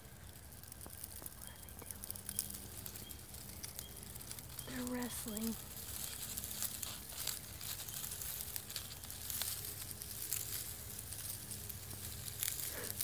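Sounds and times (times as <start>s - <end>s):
dry leaf litter rustling: 0.0s - 13.0s.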